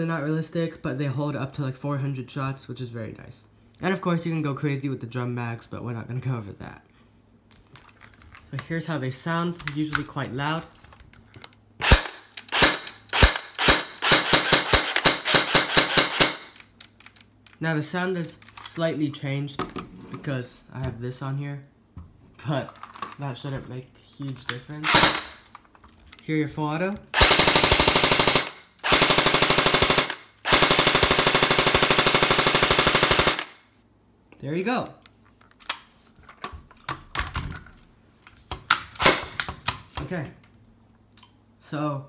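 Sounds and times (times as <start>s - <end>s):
airsoft rifle firing: 11.8s - 16.6s, 24.8s - 25.5s, 27.1s - 33.6s.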